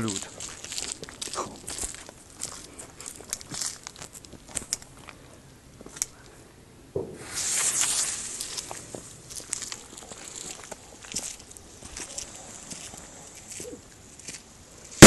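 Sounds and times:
firework crackling: 7.0 - 13.4.

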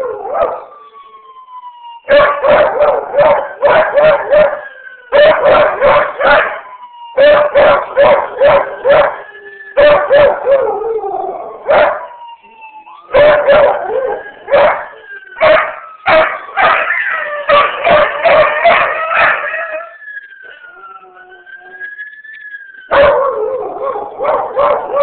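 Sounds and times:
ambulance siren wailing: 0.0 - 25.0
dog howling: 7.2 - 12.0, 12.9 - 19.9, 22.9 - 25.0.

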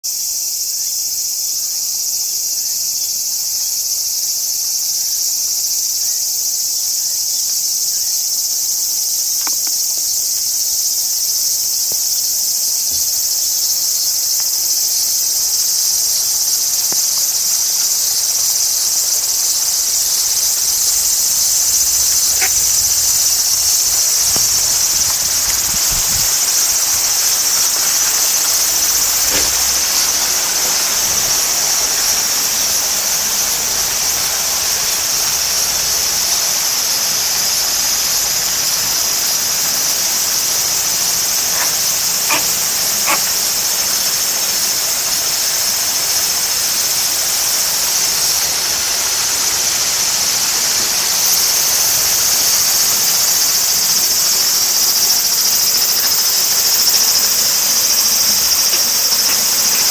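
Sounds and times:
insects buzzing chorus: 0.0 - 59.9
faint clicks: 21.1 - 31.1, 41.5 - 43.3, 55.8 - 59.9.

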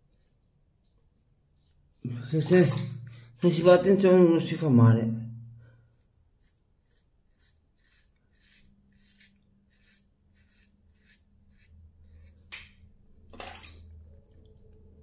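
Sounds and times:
razor scraping stubble: 5.9 - 12.5.

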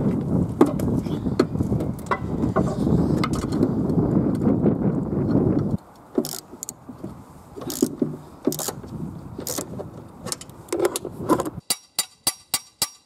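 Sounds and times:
ratchet clicking: 6.2 - 6.8, 7.6 - 7.9, 8.5 - 8.8.

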